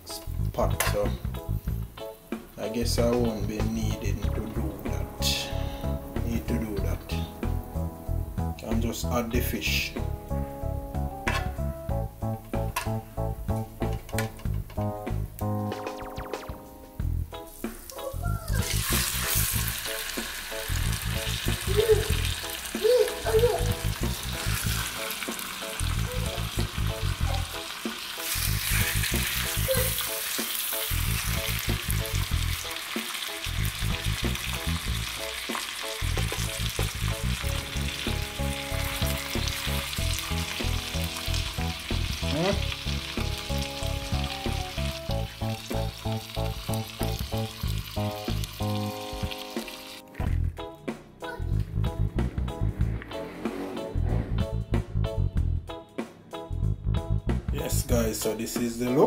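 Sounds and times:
fish sizzling in butter: 17.4s - 50.2s.

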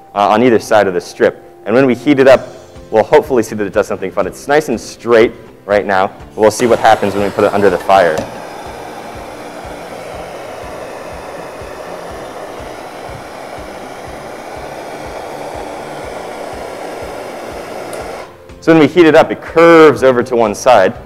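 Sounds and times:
blowtorch flame hissing: 5.8s - 18.9s.

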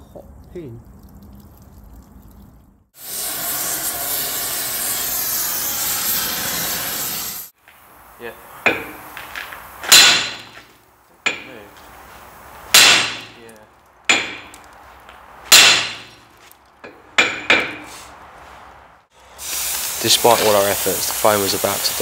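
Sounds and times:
gas cutting torch hissing: 3.0s - 7.6s, 19.2s - 22.0s
hammer striking metal drift: 9.9s - 10.6s, 12.7s - 13.4s, 14.1s - 14.5s, 15.5s - 16.2s.

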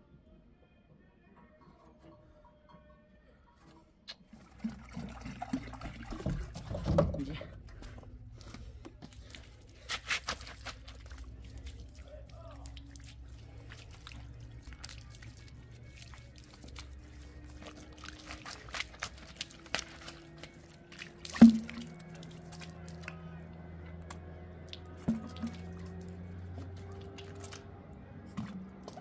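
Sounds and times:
water splashing on concrete floor: 9.1s - 23.2s, 24.1s - 27.6s.

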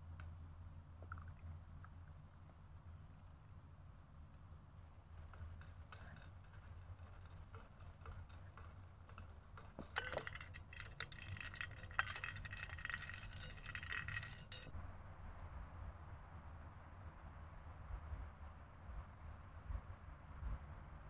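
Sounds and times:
teaspoon clinking in glass cup: 7.6s - 14.7s.

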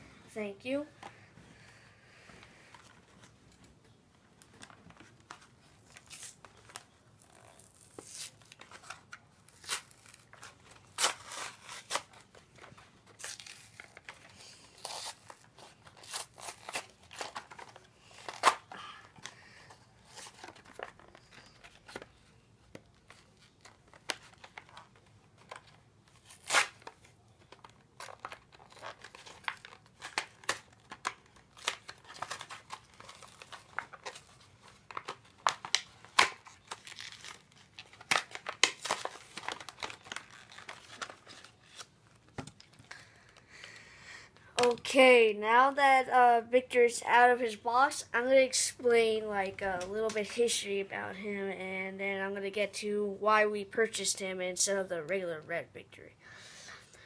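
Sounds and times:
cardboard packaging tearing: 7.2s - 8.9s, 9.5s - 12.2s, 13.2s - 18.7s, 25.5s - 27.0s, 27.6s - 41.9s.

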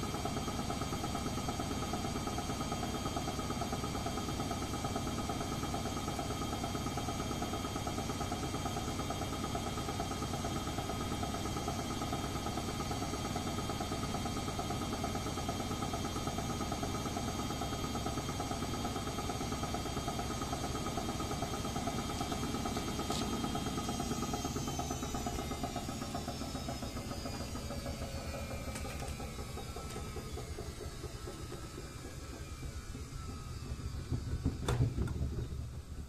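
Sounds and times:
washing machine motor whine: 0.0s - 36.0s
washing machine drum rumble: 33.6s - 36.0s.

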